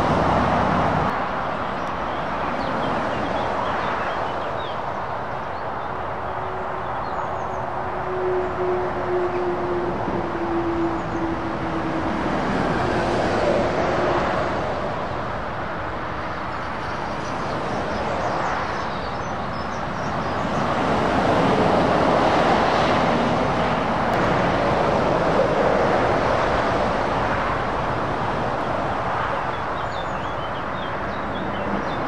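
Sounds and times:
heavy truck passing: 0.0 - 3.5, 5.9 - 16.8, 20.4 - 32.0
lorries and cars passing: 0.0 - 32.0
steady engine tone: 6.2 - 15.0.

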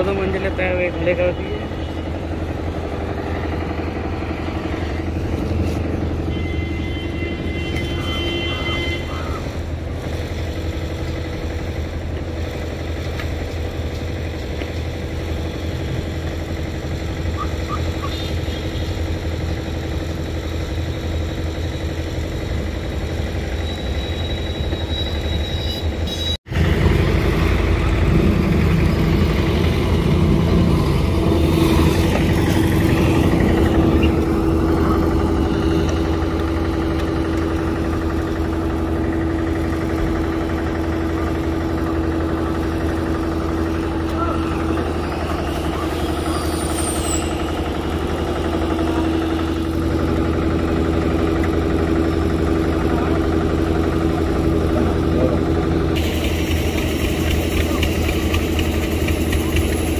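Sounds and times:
engine idling: 0.0 - 59.9.

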